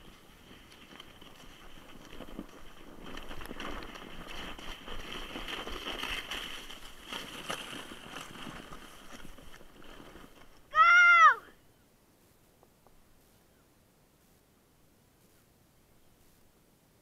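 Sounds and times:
sled hissing and scraping on snow: 0.0s - 10.6s.

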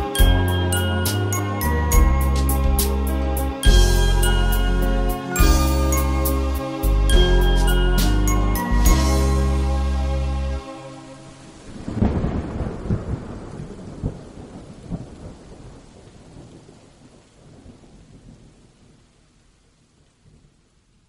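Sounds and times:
held musical chord: 0.0s - 11.4s
rain hissing: 0.0s - 21.0s
thunder rumbling: 11.3s - 19.0s.

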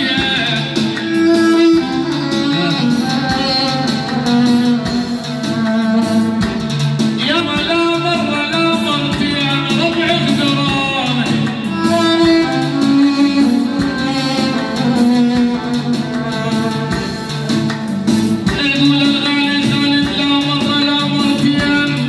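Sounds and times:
electronic keyboard folk melody: 0.0s - 22.0s.

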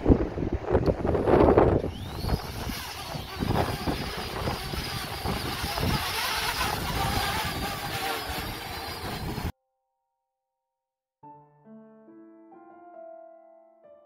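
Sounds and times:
wind buffeting microphone: 0.0s - 9.5s
drone propellers whining: 1.1s - 9.5s.

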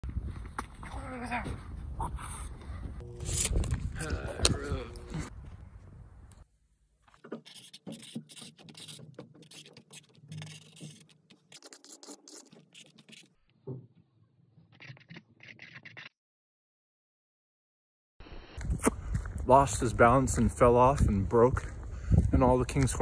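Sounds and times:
marker scratching on cardboard: 7.2s - 13.4s.

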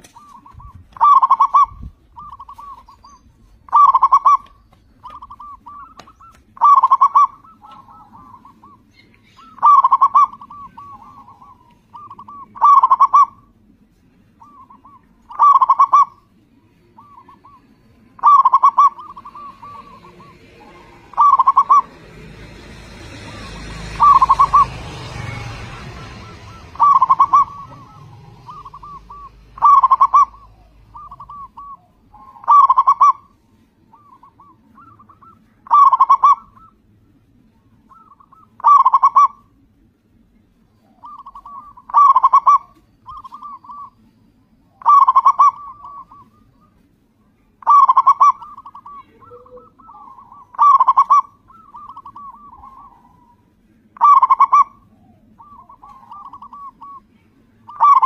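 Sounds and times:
dove cooing: 0.0s - 13.6s, 14.4s - 36.8s, 37.9s - 39.5s, 40.8s - 44.0s, 44.7s - 46.8s, 47.6s - 58.0s.

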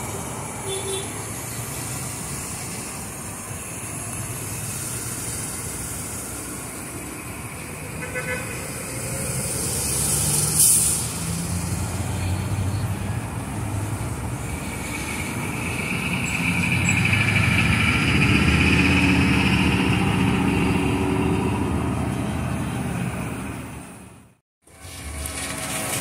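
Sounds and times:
heavy vehicle engine running: 0.0s - 26.0s
road traffic: 0.0s - 26.0s.

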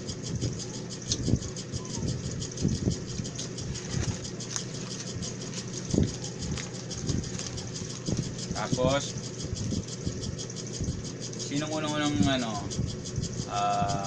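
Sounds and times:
people eating: 0.0s - 14.0s
steady background hum: 0.0s - 14.0s.

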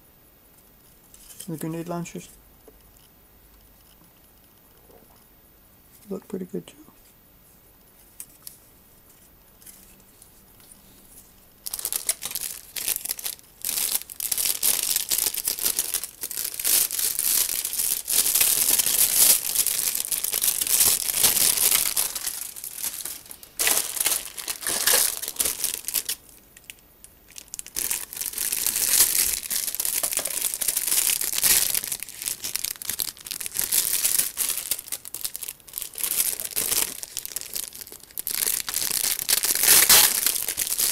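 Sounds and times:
plastic bag crinkling: 11.6s - 40.9s.

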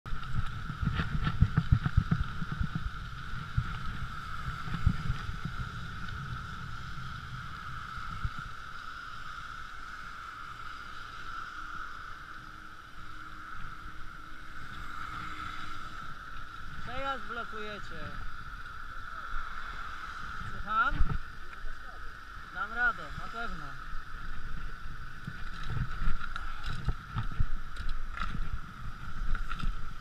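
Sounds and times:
bicycle bumping over path: 0.1s - 6.4s
bicycle rolling noise: 0.1s - 30.0s
constant high hum: 0.1s - 30.0s.

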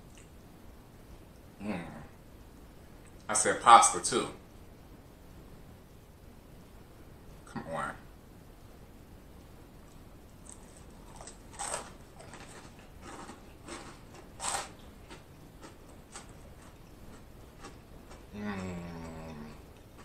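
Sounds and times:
man chewing with wet smacks: 0.0s - 0.5s, 9.8s - 20.0s
man humming low: 18.3s - 19.7s.

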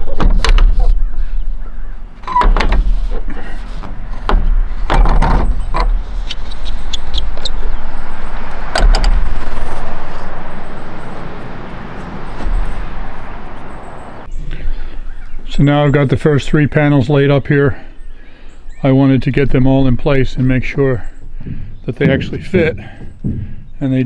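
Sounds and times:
panel clunking on metal rack: 2.2s - 6.2s, 8.6s - 9.5s.

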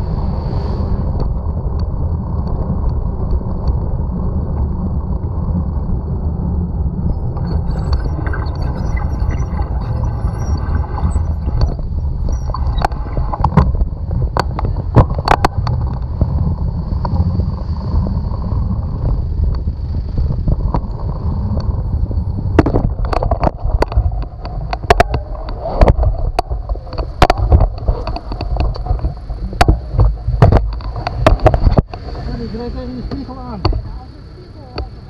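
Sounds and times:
wind buffeting microphone: 11.1s - 35.0s.

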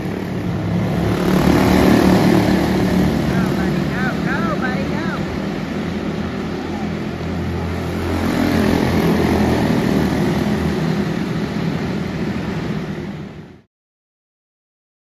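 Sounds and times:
race car engines droning: 0.0s - 13.6s.

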